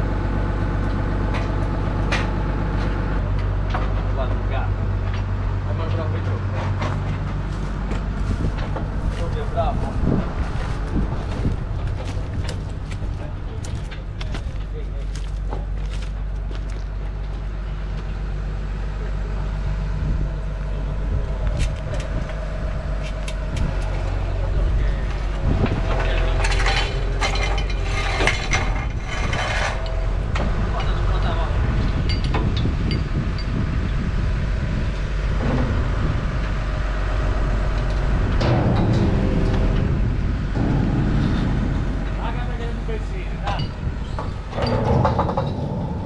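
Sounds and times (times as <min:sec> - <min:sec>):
diesel engine idling: 0:00.0 - 0:29.1
steady whine: 0:17.1 - 0:33.4, 0:34.4 - 0:46.0
sharp knocks: 0:38.4 - 0:45.9.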